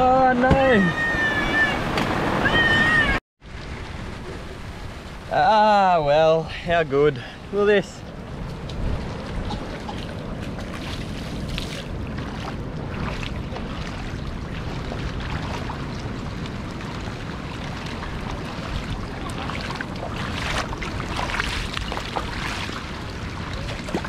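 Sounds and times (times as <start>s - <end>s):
wind buffeting microphone: 7.4s - 24.0s
rain falling on puddles: 13.6s - 24.0s.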